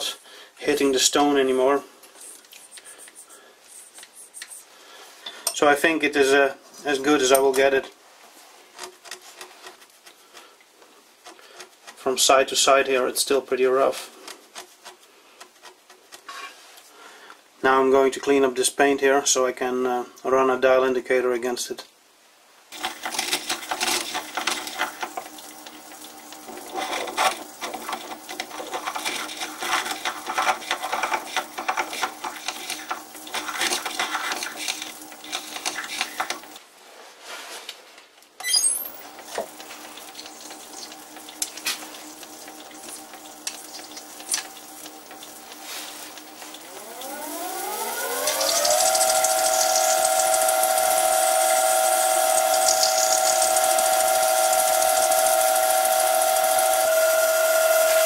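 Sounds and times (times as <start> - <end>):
lathe motor humming: 22.8 - 36.6, 39.0 - 58.0
blade scraping paint: 26.4 - 36.6.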